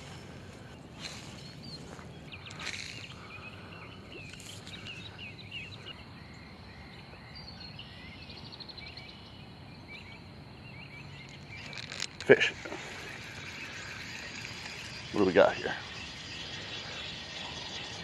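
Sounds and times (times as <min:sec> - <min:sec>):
faint high insect-like tone: 0:00.0 - 0:18.0
low outdoor background noise: 0:00.0 - 0:18.0
small birds chirping: 0:00.0 - 0:18.0.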